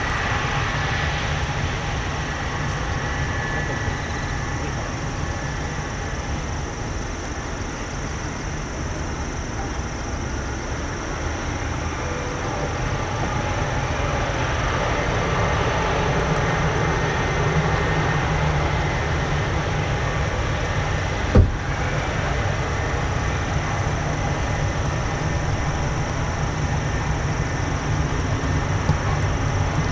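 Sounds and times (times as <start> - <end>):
jet engines rumbling: 0.0 - 29.9
sharp knock: 21.3 - 21.6.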